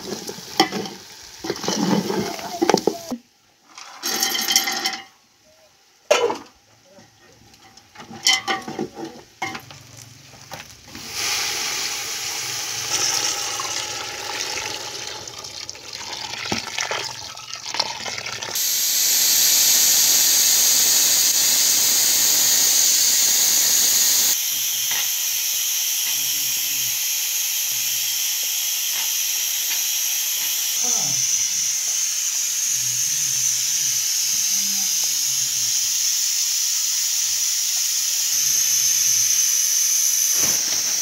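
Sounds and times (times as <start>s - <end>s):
food sizzling: 0.0s - 5.0s, 8.2s - 41.0s
loud steady hiss: 9.3s - 15.3s, 18.6s - 41.0s
water poured into hot pot: 10.9s - 18.7s.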